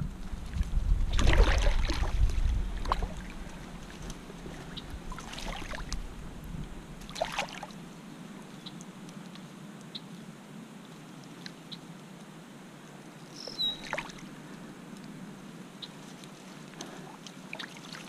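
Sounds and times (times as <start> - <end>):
pond water splashing: 0.3 - 8.0, 13.3 - 14.8, 16.1 - 18.0.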